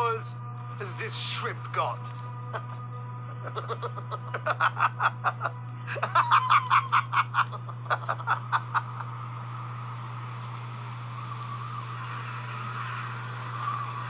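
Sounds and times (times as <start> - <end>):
person laughing: 3.4 - 9.2.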